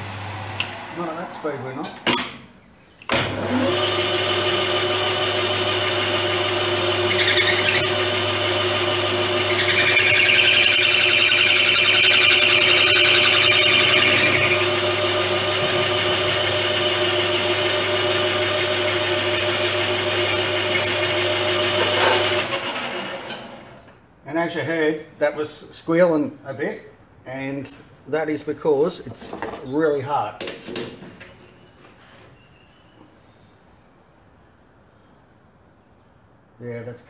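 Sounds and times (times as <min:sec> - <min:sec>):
metal lathe running: 0:03.2 - 0:22.6
cutting tool squealing: 0:06.9 - 0:07.9, 0:09.3 - 0:14.8.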